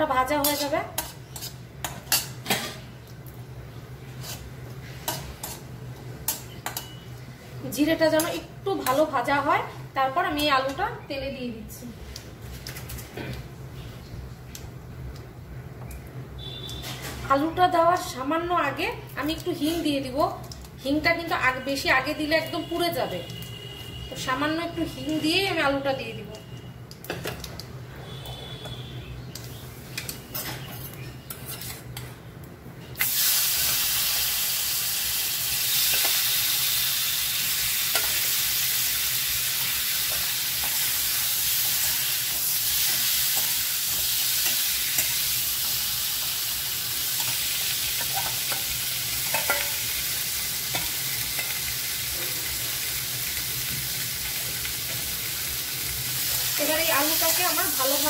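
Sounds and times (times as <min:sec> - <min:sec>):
potatoes sizzling in oil: 0:00.0 - 0:02.4, 0:16.4 - 0:23.1, 0:33.0 - 0:58.0.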